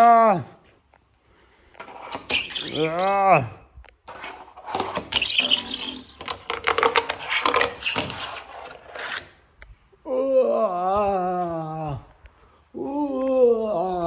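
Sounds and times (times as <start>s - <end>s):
fingerboard rolling and clacking: 1.8s - 3.0s, 4.1s - 9.4s
person's drawn-out vocal sound: 10.0s - 14.0s.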